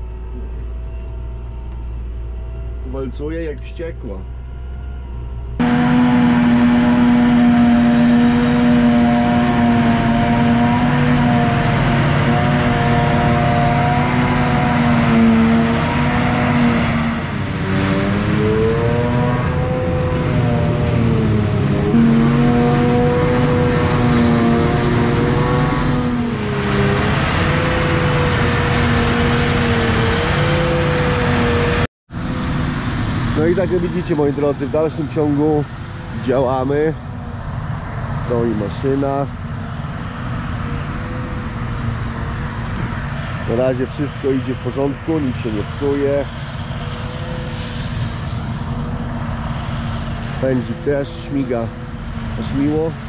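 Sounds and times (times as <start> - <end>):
heavy machinery engine drone: 0.0 - 53.0.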